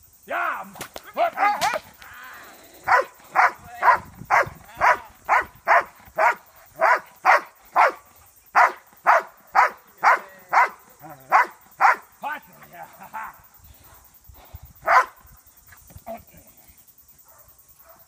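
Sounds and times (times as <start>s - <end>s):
dog barking: 2.8s - 8.0s, 8.6s - 12.0s, 14.8s - 15.2s, 17.2s - 18.0s.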